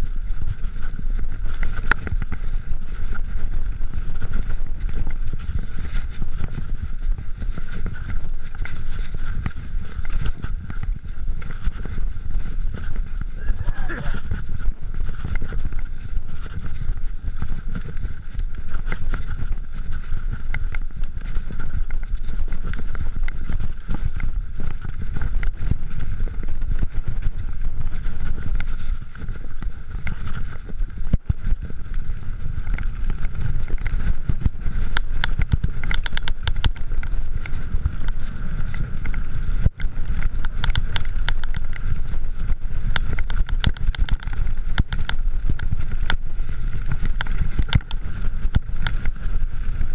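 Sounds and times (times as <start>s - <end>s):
bike clicks and rattles: 0.0s - 49.9s
wind buffeting microphone: 0.0s - 49.9s
tyres on dirt: 13.4s - 15.2s.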